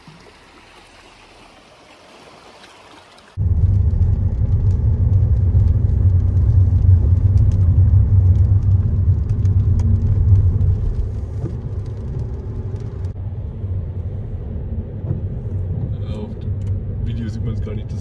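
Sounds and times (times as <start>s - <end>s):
car road and engine rumble: 3.3s - 18.0s.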